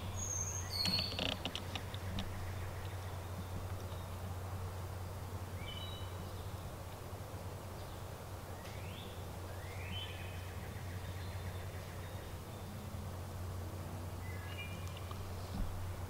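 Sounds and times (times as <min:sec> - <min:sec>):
songbirds whistling: 0:00.0 - 0:04.2, 0:05.6 - 0:06.8, 0:08.6 - 0:12.8, 0:14.2 - 0:15.6
steady low hum: 0:01.4 - 0:16.0.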